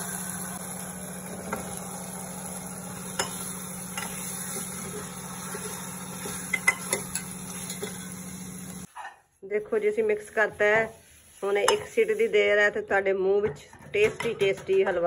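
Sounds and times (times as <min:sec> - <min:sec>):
ladle clinking on metal pot: 0:06.5 - 0:08.0.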